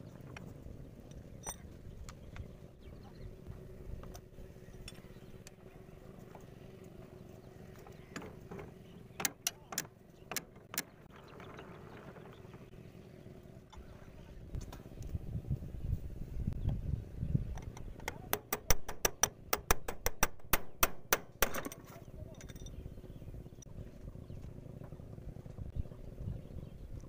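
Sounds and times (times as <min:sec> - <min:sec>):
faint low rumble: 0:10.9 - 0:18.0, 0:21.9 - 0:27.0.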